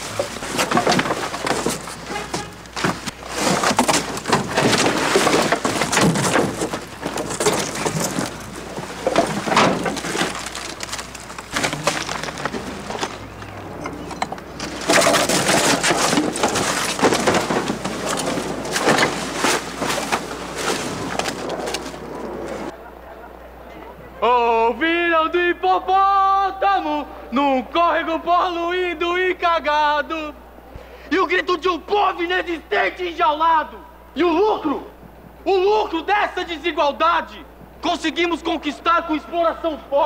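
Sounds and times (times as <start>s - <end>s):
plastic bags and litter rustling: 0.0s - 22.7s.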